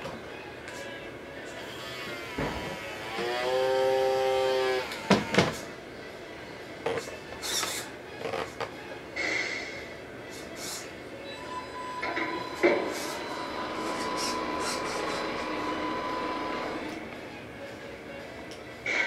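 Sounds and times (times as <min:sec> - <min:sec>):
horn-like blast: 0:12.4 - 0:17.0.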